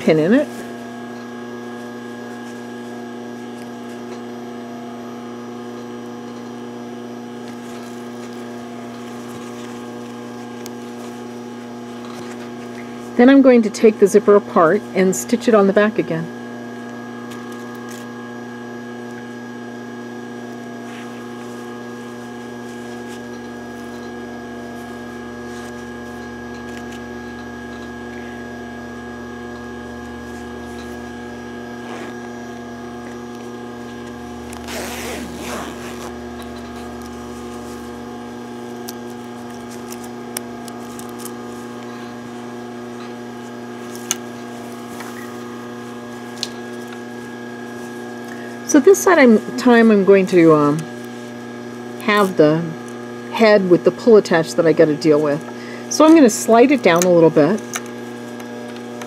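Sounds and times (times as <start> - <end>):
steady hum: 0.0 - 59.0
towel fabric rustling: 33.7 - 36.2.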